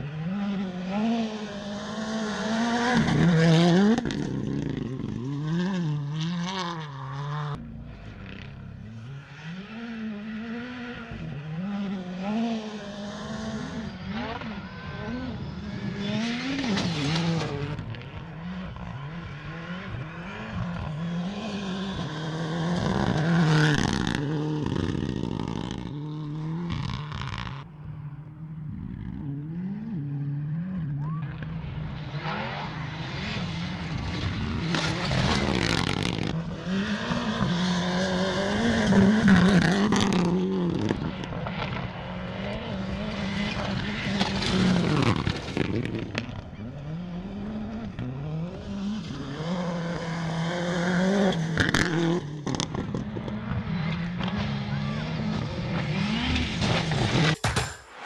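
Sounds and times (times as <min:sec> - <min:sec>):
racing car engines revving past: 0:00.0 - 0:57.4.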